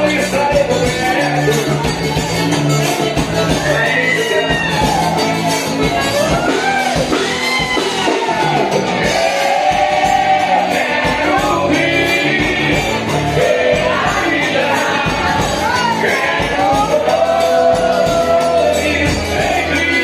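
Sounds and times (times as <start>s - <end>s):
person singing: 0.0s - 2.0s, 8.2s - 20.0s.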